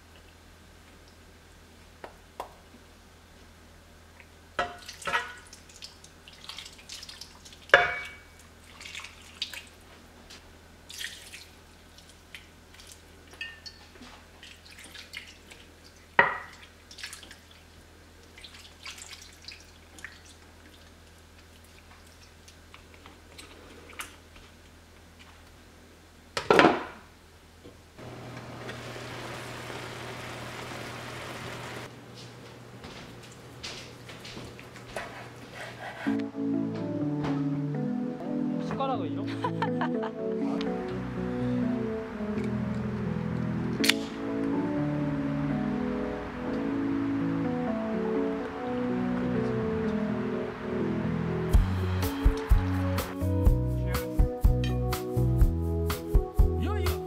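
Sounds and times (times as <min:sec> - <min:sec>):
pot boiling hiss: 0:28.0 - 0:31.9.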